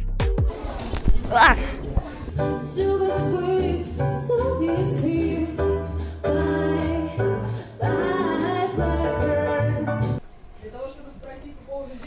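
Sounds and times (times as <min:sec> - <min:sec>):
instrumental backing with bass: 0:02.3 - 0:10.2
woman singing into microphone: 0:02.5 - 0:09.9.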